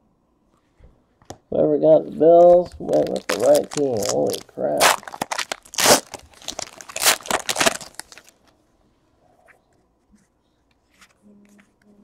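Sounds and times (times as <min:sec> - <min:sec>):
foil wrapper crinkling: 0:02.4 - 0:08.5.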